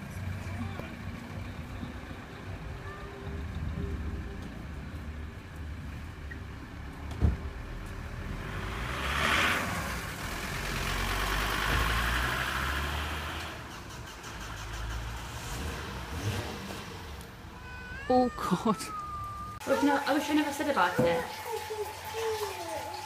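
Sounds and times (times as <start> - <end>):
low rumble of passing car: 0.0 - 18.1
tyres hissing on wet road: 8.2 - 17.2.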